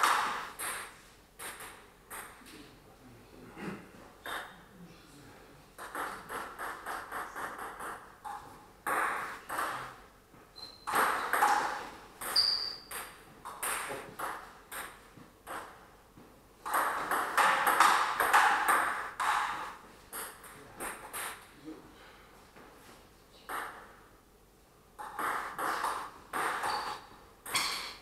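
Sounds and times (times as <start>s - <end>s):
high squeaks: 12.2s - 12.9s, 26.6s - 28.0s.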